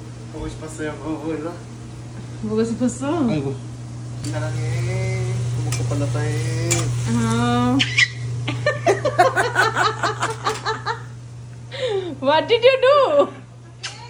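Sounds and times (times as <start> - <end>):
steady low hum: 0.0 - 14.0
person laughing: 7.9 - 11.1.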